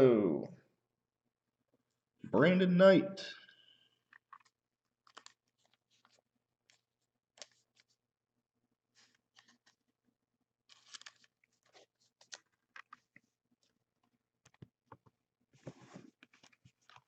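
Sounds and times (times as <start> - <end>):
trading cards rustling: 4.1 - 8.0, 10.7 - 13.8.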